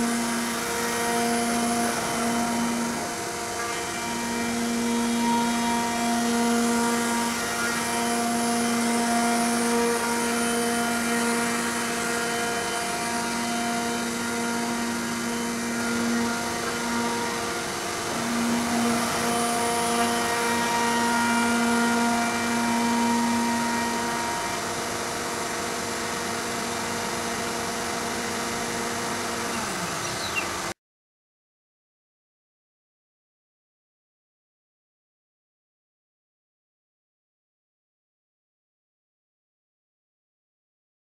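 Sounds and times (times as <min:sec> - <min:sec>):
router spindle whining hum: 0:00.0 - 0:30.8.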